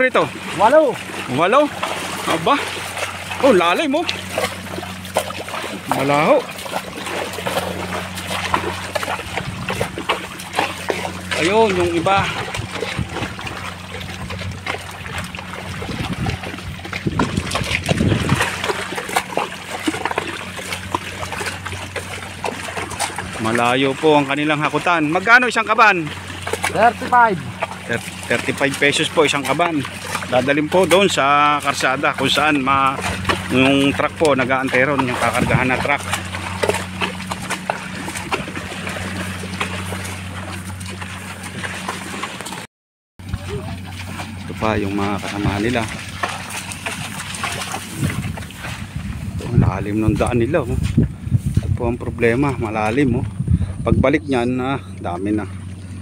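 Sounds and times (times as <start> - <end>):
cart rumbling: 0.0 - 42.6, 43.2 - 56.0
splashing and squelching in mud: 0.0 - 56.0
cart knocks and creaks: 3.4 - 42.6.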